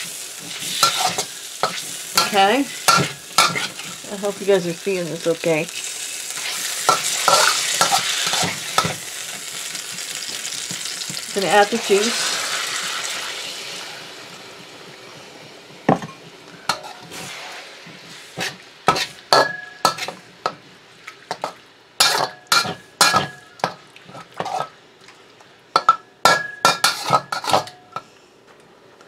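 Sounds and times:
juice sizzling in a hot wok: 0:00.0 - 0:24.8, 0:25.6 - 0:28.0
metal spoon scraping a wok: 0:00.4 - 0:04.0, 0:06.4 - 0:09.6, 0:16.7 - 0:20.2, 0:24.4 - 0:24.7, 0:26.7 - 0:27.7.

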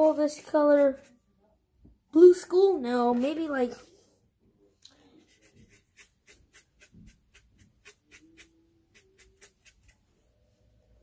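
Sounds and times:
paintbrush tapping and scraping: 0:04.9 - 0:10.1.

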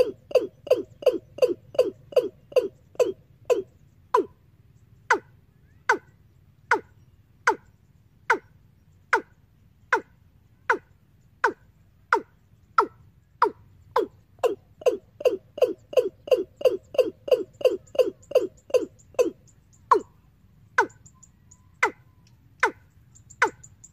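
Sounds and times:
recorded bird call over loudspeaker: 0:19.7 - 0:23.9.

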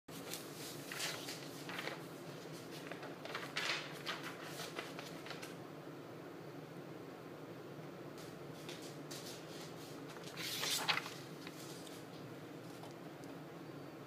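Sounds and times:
paper rustling: 0:00.1 - 0:05.6, 0:08.6 - 0:13.0
steady low hum: 0:00.1 - 0:14.0.

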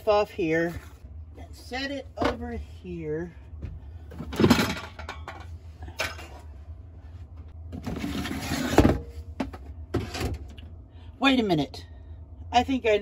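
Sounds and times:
kitchen items being handled: 0:04.0 - 0:06.6.

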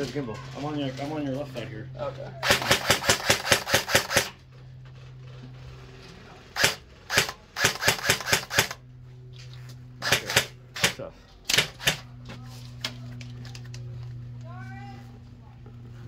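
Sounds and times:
airsoft rifle shots: 0:02.4 - 0:04.4, 0:06.6 - 0:08.8, 0:10.0 - 0:12.1.

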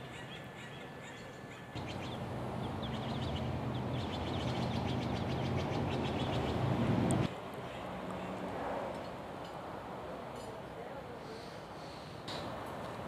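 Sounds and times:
small birds chirping: 0:00.0 - 0:08.3
steady low rumble: 0:01.8 - 0:07.3.

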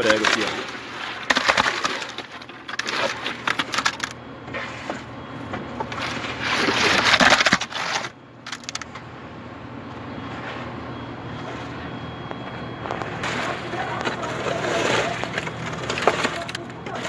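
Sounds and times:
rebar scraping metal chute: 0:13.2 - 0:17.0.

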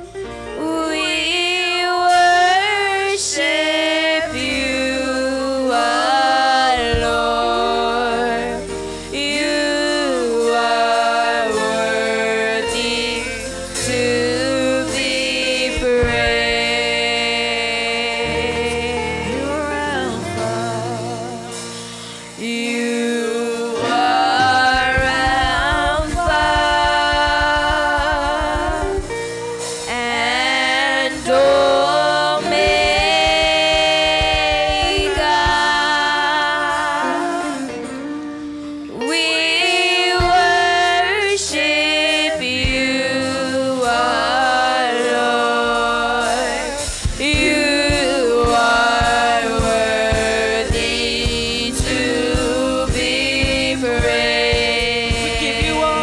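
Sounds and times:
live band playing: 0:00.0 - 0:56.0
women singing gospel song: 0:00.0 - 0:56.0.

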